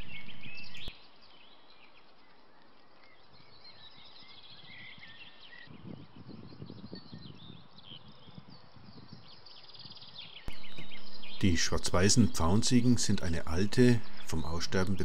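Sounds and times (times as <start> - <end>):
soft crackling rustles: 0.0 - 5.7
small birds chirping: 0.0 - 15.0.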